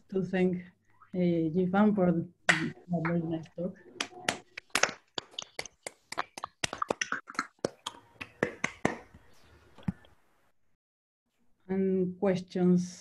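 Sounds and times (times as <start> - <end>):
people clapping: 4.0 - 9.2.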